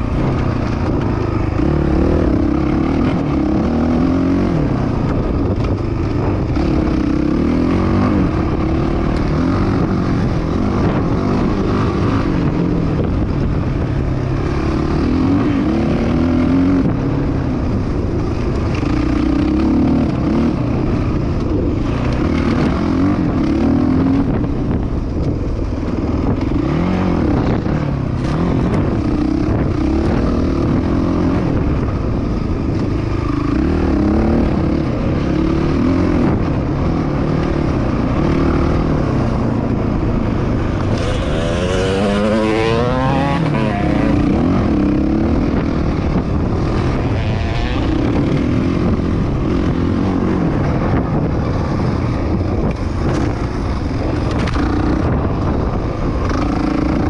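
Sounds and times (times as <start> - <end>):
dirt bike engine revving: 33.2 - 51.8.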